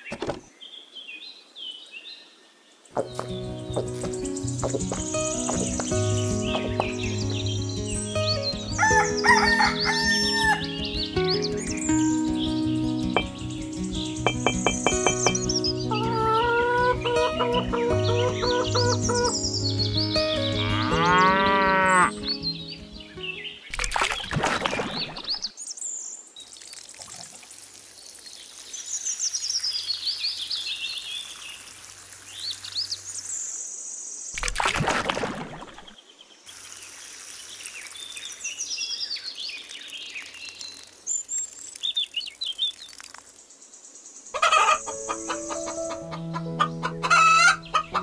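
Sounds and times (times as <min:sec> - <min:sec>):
small birds chirping: 0:00.0 - 0:27.2, 0:27.8 - 0:48.0
water pouring into pond: 0:03.0 - 0:12.7, 0:23.7 - 0:25.5, 0:26.2 - 0:33.6, 0:34.4 - 0:43.7.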